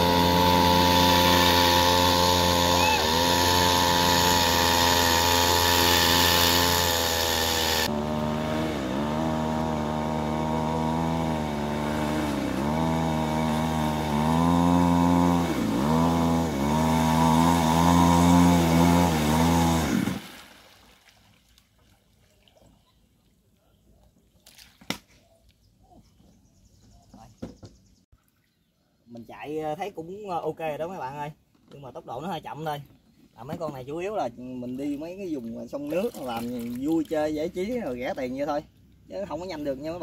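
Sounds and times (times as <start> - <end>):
two-stroke chainsaw engine running: 0.0 - 20.2.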